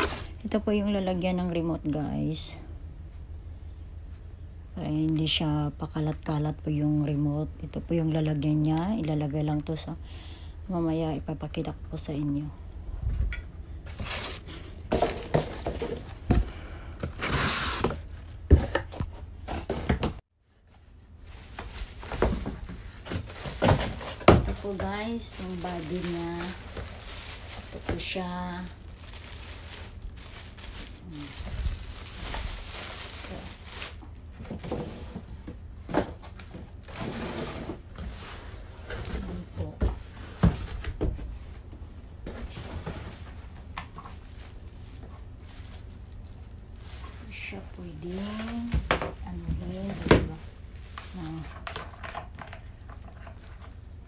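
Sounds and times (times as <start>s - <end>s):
cardboard and plastic rustling: 0.0s - 1.0s, 13.8s - 54.0s.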